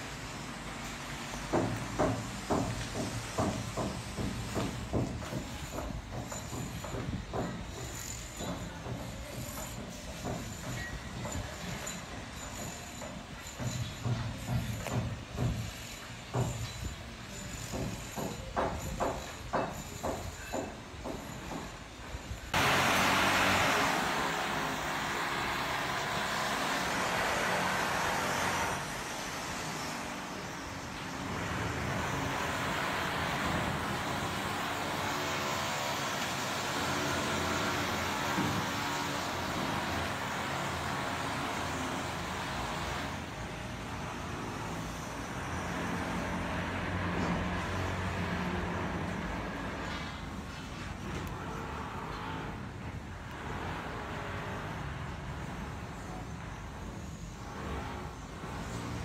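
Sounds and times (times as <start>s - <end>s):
vehicle hum and hiss: 22.1s - 59.0s.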